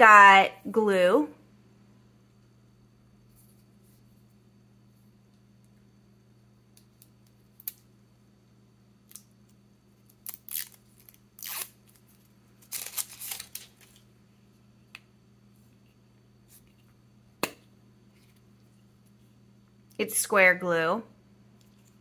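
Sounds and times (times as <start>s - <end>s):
packaging tearing and crinkling: 10.1s - 14.0s.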